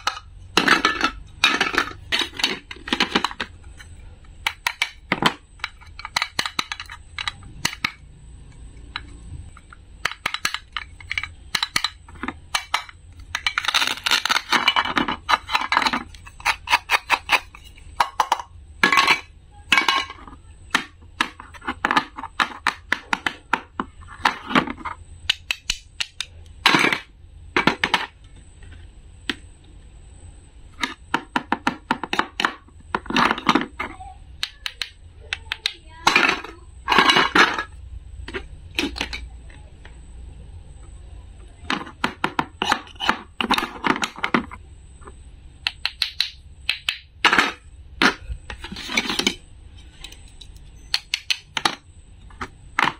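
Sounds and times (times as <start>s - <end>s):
toy pieces tapping and clicking: 0.0s - 28.2s, 30.8s - 39.3s, 45.6s - 49.4s, 50.0s - 52.9s
toy pieces scraping on plastic board: 10.0s - 19.3s, 41.8s - 44.6s, 47.3s - 50.3s.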